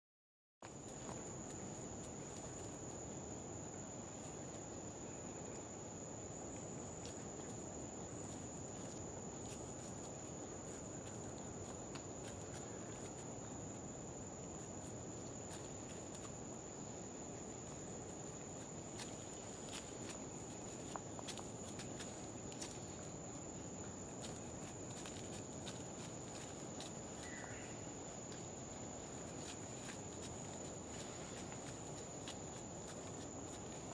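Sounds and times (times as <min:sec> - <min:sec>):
low hiss of ambience: 0:00.6 - 0:33.9
rustling in dry leaves: 0:06.8 - 0:33.9
faint chirp: 0:27.2 - 0:28.0.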